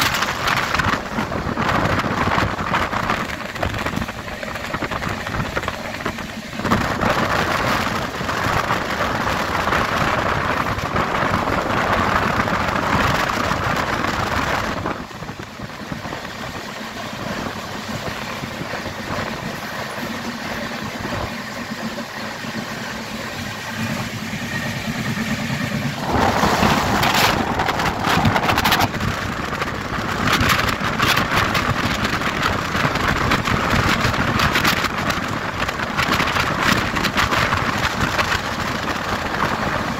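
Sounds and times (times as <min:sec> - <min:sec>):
train wheels on rails: 0:00.0 - 0:39.9
rushing air: 0:23.4 - 0:39.9.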